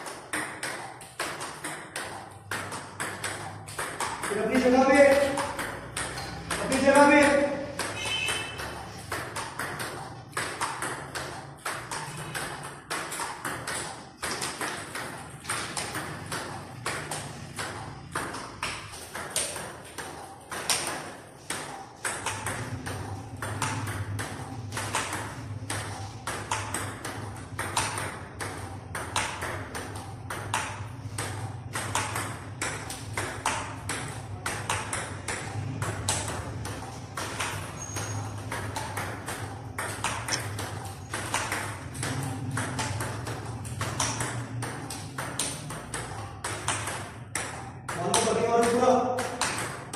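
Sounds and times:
table tennis balls clicking: 0.0 - 49.9.

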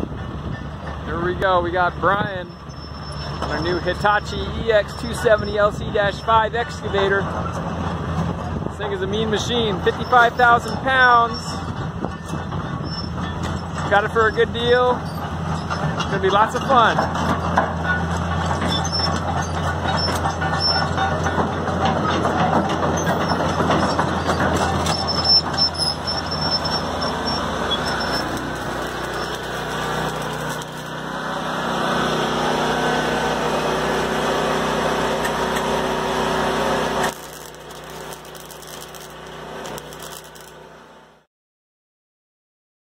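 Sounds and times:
excavator diesel engine running: 0.0 - 41.0
steady machine hum: 24.4 - 40.5.

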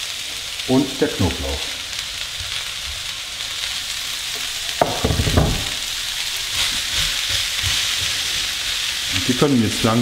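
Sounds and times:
onions sizzling in a skillet: 0.0 - 10.0
wooden spatula scraping a pan: 5.2 - 10.0.

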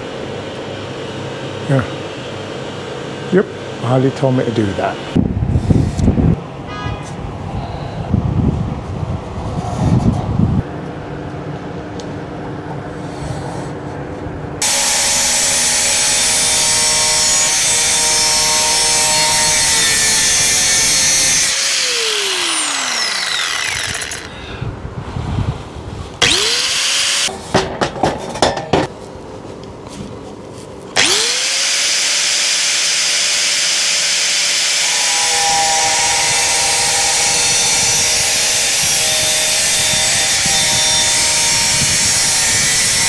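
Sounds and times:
angle grinder cutting metal: 14.6 - 24.4, 26.2 - 27.3, 31.0 - 43.0.

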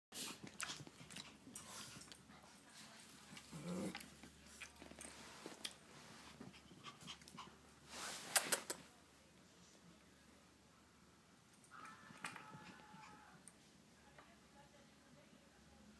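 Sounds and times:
dog growling: 3.4 - 4.1, 12.1 - 13.4.

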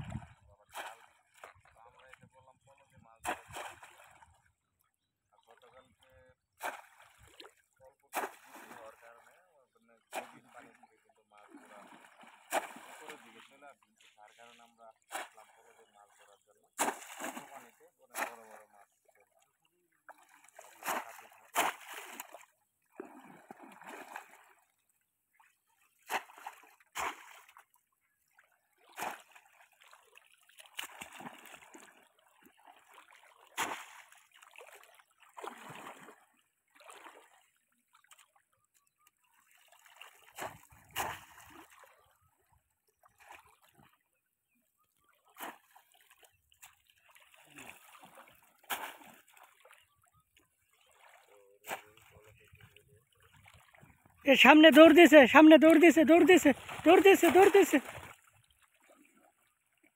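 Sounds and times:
fish traps splashing into water: 0.0 - 1.5, 3.2 - 4.2, 6.5 - 9.2, 10.1 - 10.8, 11.4 - 13.5, 16.7 - 18.8, 20.1 - 24.6, 26.0 - 27.7, 28.8 - 37.4, 39.6 - 41.9, 45.2 - 49.8, 50.8 - 52.1, 53.4 - 59.3
legs wading through water: 0.0 - 59.9.

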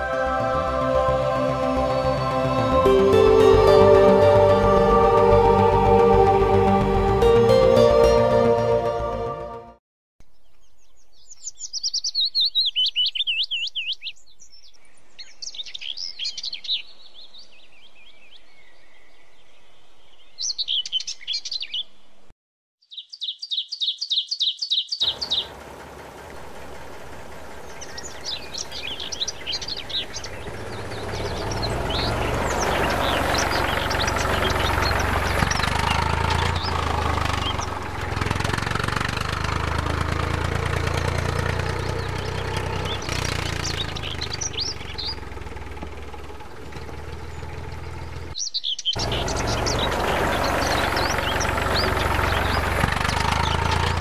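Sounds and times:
birds chirping: 10.2 - 22.2, 22.8 - 54.0.

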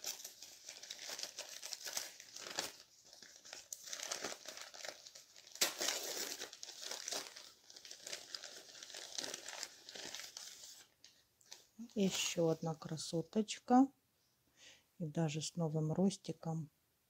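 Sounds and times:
paper tearing: 0.0 - 10.9
newspaper crinkling and rustling: 0.0 - 12.5.

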